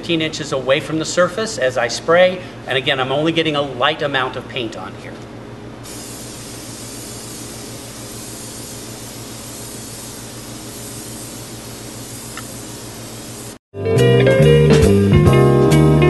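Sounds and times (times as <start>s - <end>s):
aerosol can spraying: 5.8s - 13.6s.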